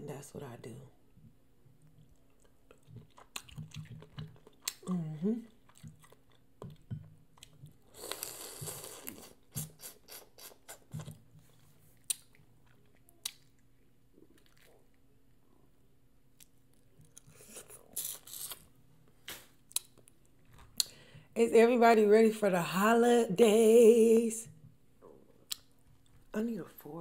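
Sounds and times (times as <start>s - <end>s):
wet chewing: 1.8s - 15.1s
slurping: 7.4s - 11.1s.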